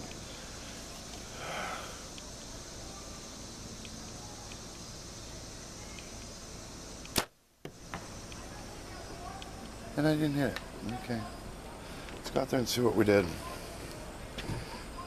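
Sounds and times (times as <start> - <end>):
insects chirring: 0.0 - 15.0
bow shot snap: 7.0 - 8.4.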